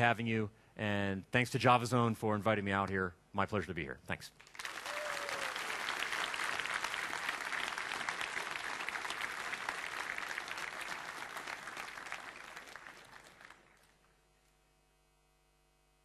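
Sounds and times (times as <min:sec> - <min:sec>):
audience applauding: 0:04.4 - 0:14.0.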